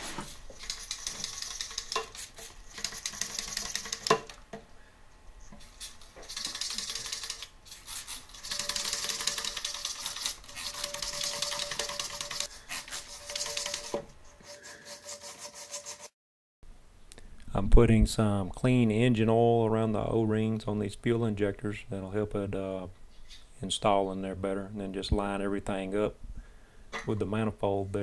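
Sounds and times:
brush scrubbing inside holes: 0.0 - 4.3, 5.6 - 16.2.

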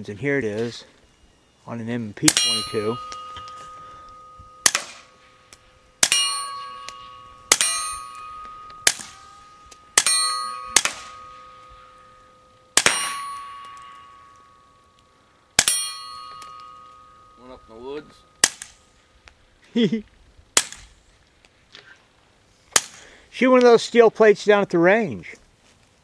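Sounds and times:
ringing metallic tone: 0.0 - 19.2
suppressed pistol shots: 4.6 - 5.1, 6.0 - 9.2, 10.0 - 11.2, 12.8 - 13.3, 15.6 - 15.9.

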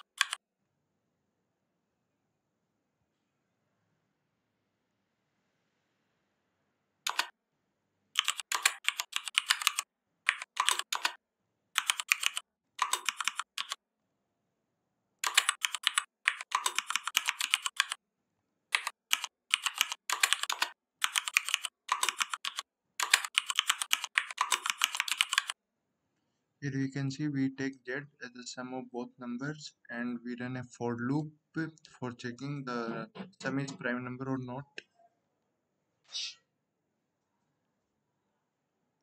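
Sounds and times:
typing on computer keyboard: 0.0 - 0.4, 7.1 - 7.3, 8.2 - 11.2, 11.8 - 13.8, 15.2 - 18.0, 18.7 - 25.6.

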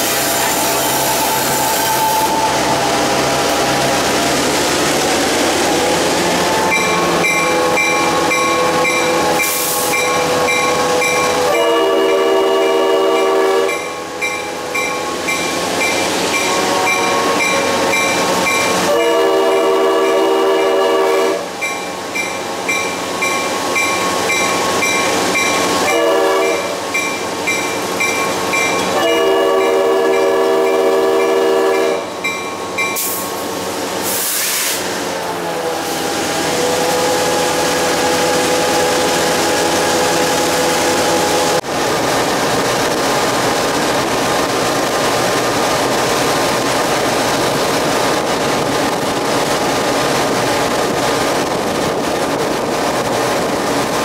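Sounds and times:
train rumble and clatter: 0.0 - 54.0
locomotive horn blasts: 6.7 - 14.9, 16.4 - 17.7, 18.8 - 21.5, 25.8 - 26.8, 28.9 - 32.1
locomotive bell ringing: 6.7 - 20.2, 21.6 - 33.2.

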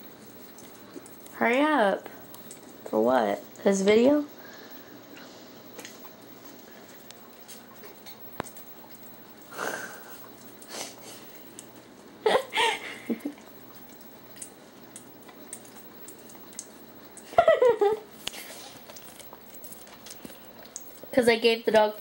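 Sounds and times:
dog licking and smacking: 13.3 - 17.3, 18.0 - 21.1.

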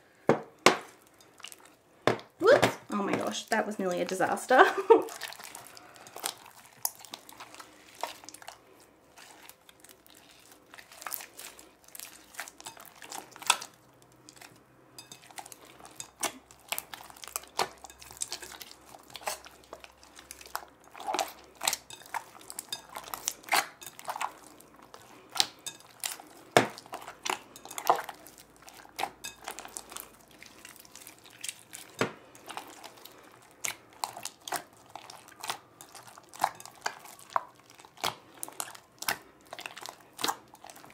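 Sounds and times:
slime squelching and popping: 15.2 - 40.9.

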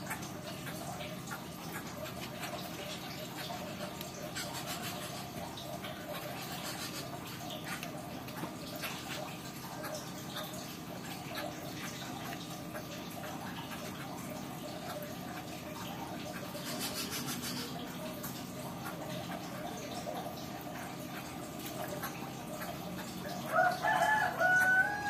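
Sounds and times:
small drips and splashes: 0.0 - 25.0
water trickling: 0.0 - 25.0.

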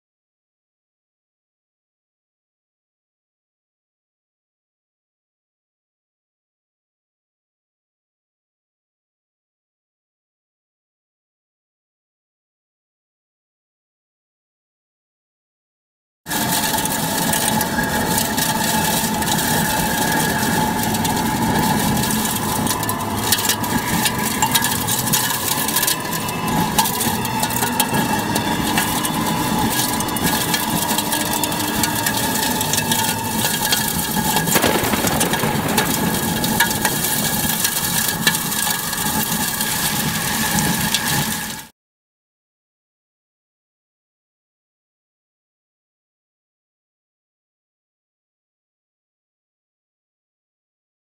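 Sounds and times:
steady high whine: 16.4 - 41.7
strong wind buffeting microphone: 17.5 - 41.5.

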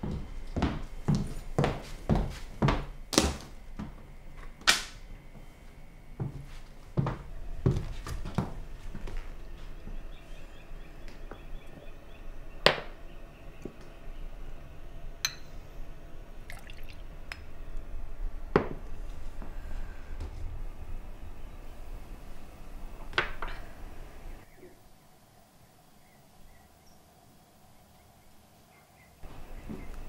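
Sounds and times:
liquor trickling into glass: 16.4 - 17.0.

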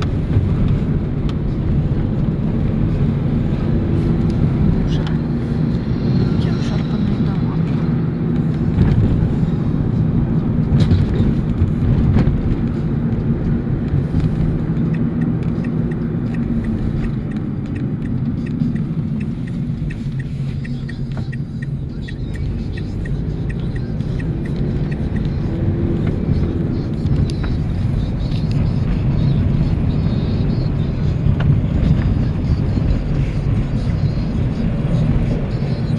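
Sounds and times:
engine and road noise in van: 0.0 - 35.9
light ticks: 14.8 - 25.3.

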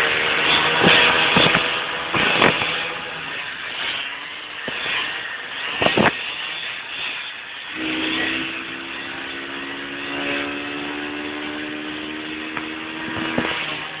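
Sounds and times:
scooter engine droning: 0.0 - 6.2, 7.7 - 14.0
rushing wind and road noise: 0.0 - 14.0.

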